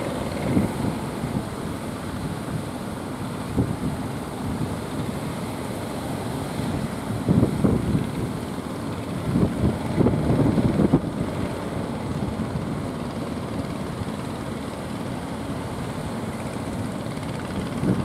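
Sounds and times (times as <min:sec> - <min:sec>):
wind buffeting microphone: 0:00.0 - 0:05.0, 0:06.5 - 0:13.6, 0:17.1 - 0:18.0
rush of wind and surf: 0:00.0 - 0:18.0.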